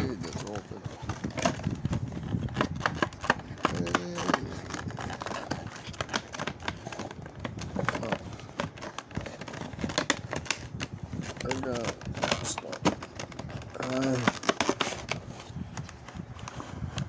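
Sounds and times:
cardboard box being opened: 0.0 - 17.0.

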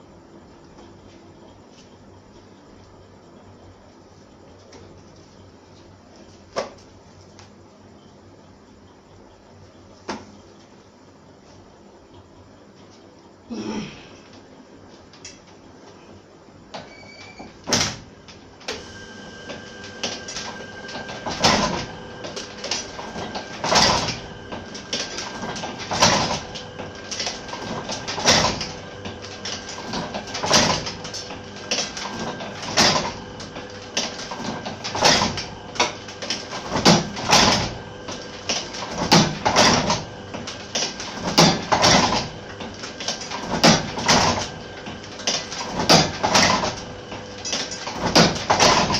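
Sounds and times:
steady hum: 0.0 - 48.9
printing press clacking: 16.8 - 48.9.

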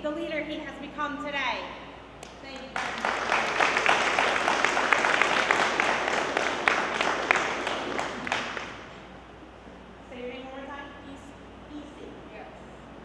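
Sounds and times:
crowd applauding: 2.7 - 9.0.

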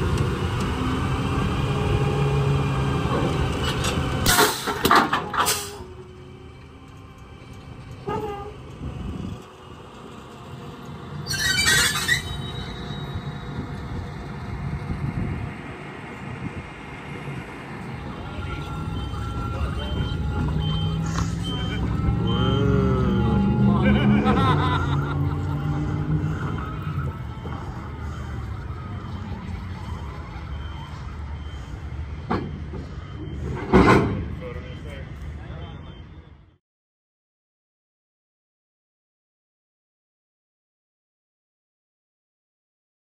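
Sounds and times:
diesel locomotive rumbling: 0.0 - 36.6.

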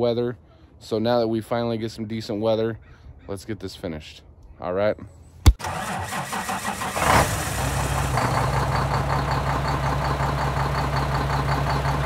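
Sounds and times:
engine starting and idling: 5.6 - 12.0.

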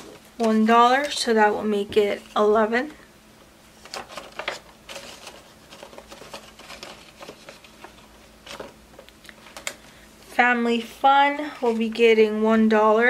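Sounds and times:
paper money and plastic rustling: 0.0 - 3.0, 3.7 - 10.0, 11.4 - 12.3.

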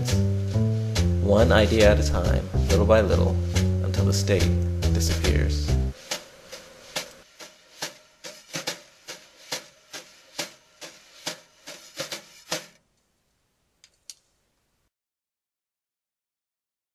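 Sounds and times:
sharp clicks: 13.8 - 14.3.

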